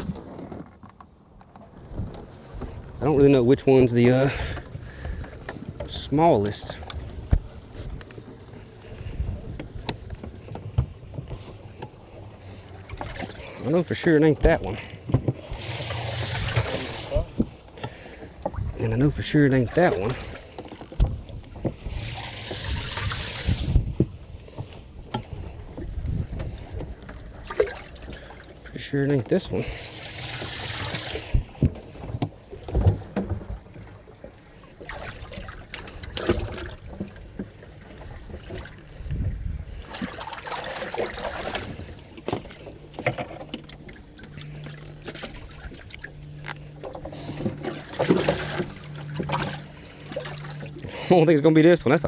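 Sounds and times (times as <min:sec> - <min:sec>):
water splashing: 0:01.9 - 0:24.0, 0:25.2 - 0:39.1, 0:39.7 - 0:52.0
low steady hum: 0:02.0 - 0:52.0
knocks and thumps of fish handling: 0:07.2 - 0:07.6, 0:09.5 - 0:12.0, 0:14.4 - 0:15.5, 0:16.4 - 0:18.8, 0:20.1 - 0:21.9, 0:23.5 - 0:28.2, 0:30.9 - 0:33.9, 0:35.7 - 0:37.6, 0:41.0 - 0:44.0, 0:46.4 - 0:49.7.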